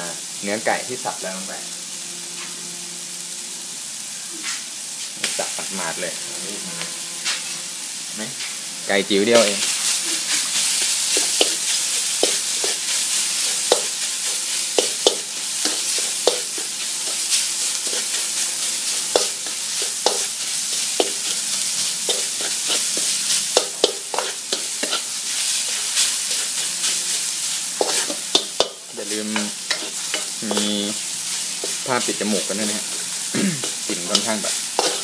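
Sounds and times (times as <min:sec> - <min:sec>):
food sizzling in a pan: 0:00.0 - 0:35.0
spatula scraping a pan: 0:09.4 - 0:35.0.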